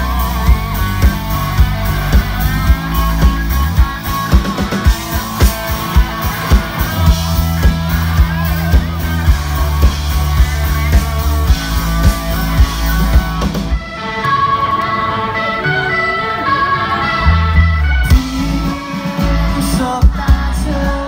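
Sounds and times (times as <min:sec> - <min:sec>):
drum beat: 0:00.0 - 0:13.8, 0:18.1 - 0:20.6
electric guitars and bass: 0:00.0 - 0:21.0
electric organ chords: 0:00.0 - 0:21.0.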